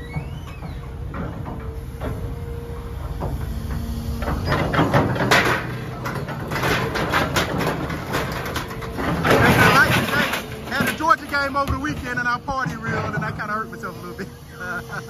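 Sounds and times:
diesel engine rumbling: 0.0s - 15.0s
metal clanking and scraping: 0.0s - 15.0s.

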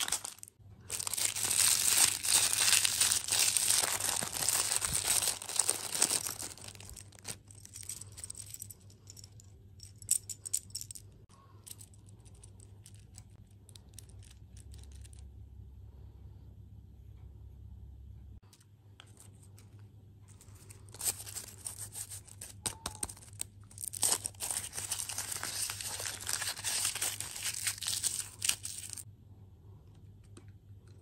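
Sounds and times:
plastic wrapper crinkling: 0.0s - 8.5s, 20.6s - 29.0s.

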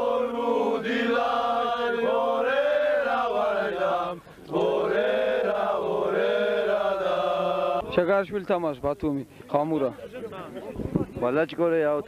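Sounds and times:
slow chant-like singing: 0.0s - 8.0s.

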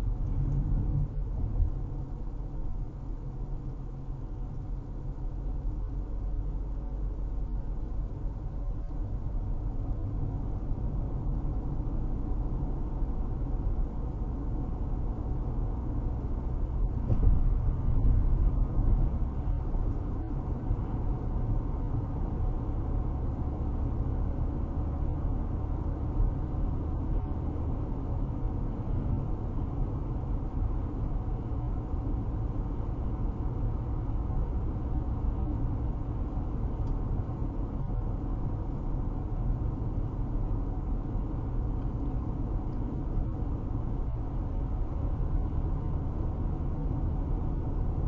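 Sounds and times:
car road noise at highway speed: 0.0s - 48.0s.

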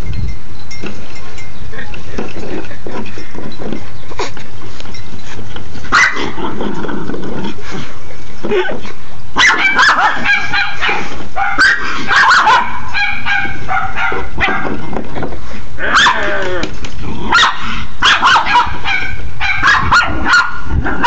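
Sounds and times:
dog barking and yipping: 5.9s - 6.4s, 9.4s - 14.8s, 15.8s - 16.3s, 17.3s - 21.0s.

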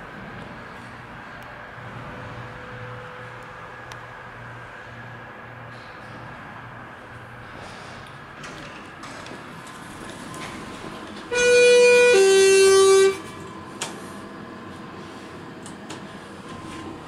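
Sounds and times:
elevator chime: 11.3s - 13.6s.

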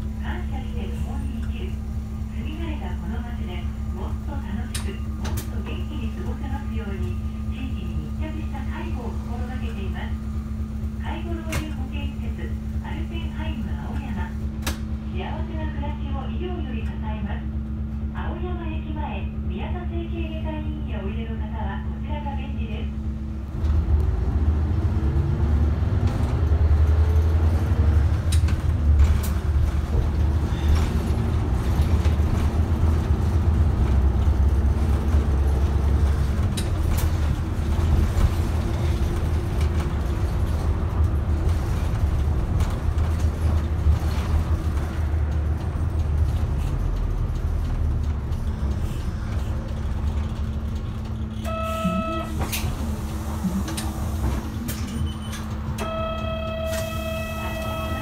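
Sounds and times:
bus engine rumble: 0.0s - 58.0s.

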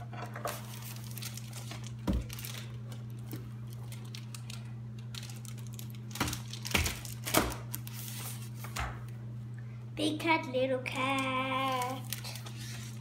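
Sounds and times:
steady low hum: 0.0s - 13.0s
page rustling: 0.5s - 8.8s, 11.7s - 13.0s.

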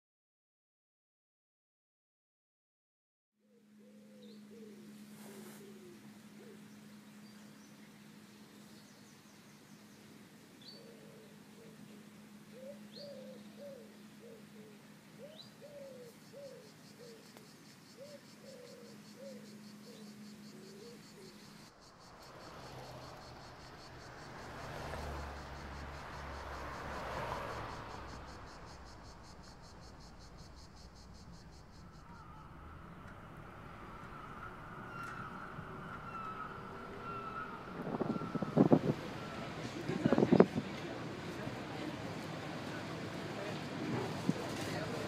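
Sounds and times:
bird low repeated calls: 3.4s - 9.9s, 10.6s - 21.7s, 27.9s - 40.6s
insect chirring: 15.2s - 39.5s.

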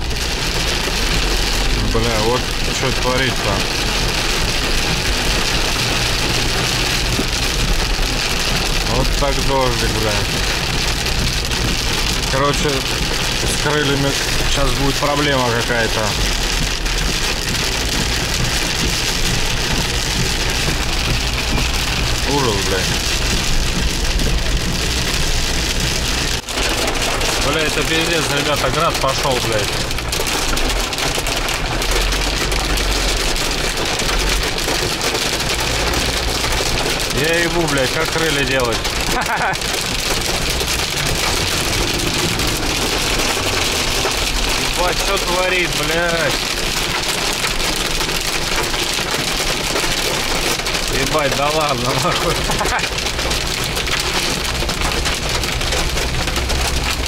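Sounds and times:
hail and rain hitting truck: 0.0s - 57.0s
truck engine running: 0.0s - 57.0s
low engine hum: 16.2s - 37.1s, 39.8s - 44.8s.

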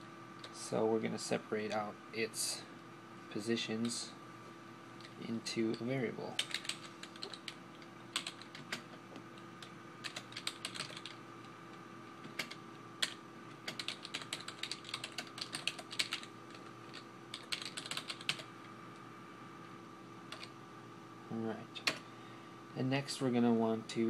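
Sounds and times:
faint electrical hum: 0.0s - 24.0s
typing on computer keyboard: 6.4s - 8.9s, 9.6s - 11.2s, 12.3s - 18.5s, 20.3s - 20.5s.

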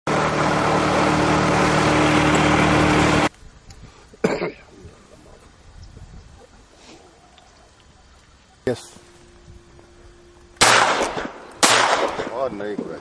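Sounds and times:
loud motor hum: 0.1s - 3.3s
shotgun shot: 10.6s - 12.7s.

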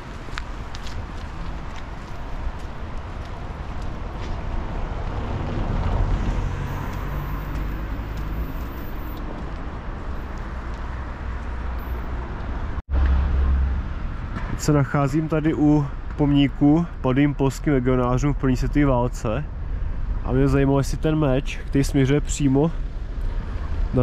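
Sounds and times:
low traffic rumble: 0.0s - 24.0s
motor vehicle passing: 0.8s - 14.5s.

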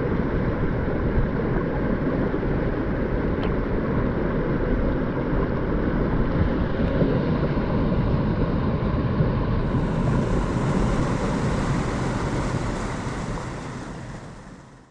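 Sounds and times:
creek water rushing over weir: 0.0s - 14.9s
wind buffeting microphone: 6.2s - 14.8s.

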